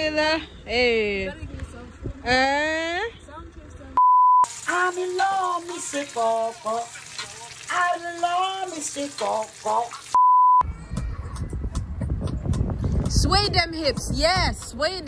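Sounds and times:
censor bleep tone: 0:04.0 - 0:04.5, 0:10.2 - 0:10.7.

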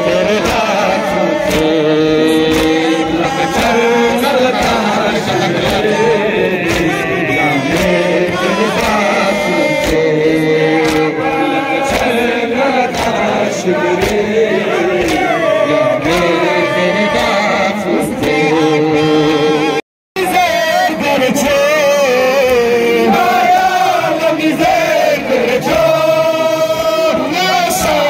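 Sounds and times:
men chanting together: 0:00.0 - 0:28.0
chest-beating slaps: 0:00.4 - 0:00.8, 0:01.4 - 0:12.2, 0:12.8 - 0:15.4.

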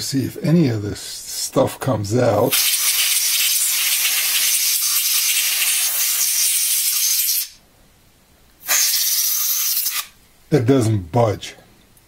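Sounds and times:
compressed air hissing from nozzle: 0:08.6 - 0:10.1.

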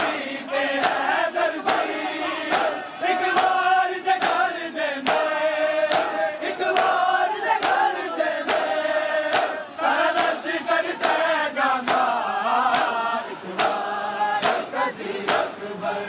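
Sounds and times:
crowd of men chanting: 0:00.0 - 0:16.0
chest-beating slaps: 0:00.8 - 0:03.6, 0:04.2 - 0:05.3, 0:05.9 - 0:06.2, 0:07.6 - 0:09.6, 0:11.0 - 0:12.1, 0:12.7 - 0:13.0, 0:13.6 - 0:14.7.

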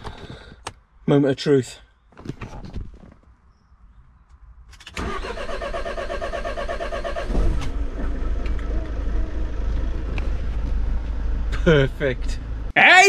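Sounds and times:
engine cranking and idling: 0:04.8 - 0:11.9.

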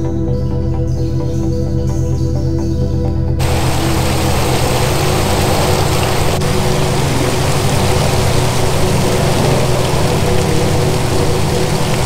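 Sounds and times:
rushing water: 0:03.4 - 0:12.0.

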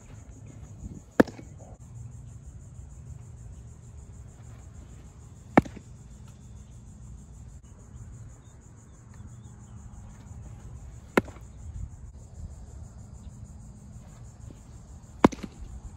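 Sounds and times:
ball popping into leather mitt: 0:01.1 - 0:01.6, 0:05.5 - 0:06.0, 0:11.1 - 0:11.4, 0:15.2 - 0:15.7.

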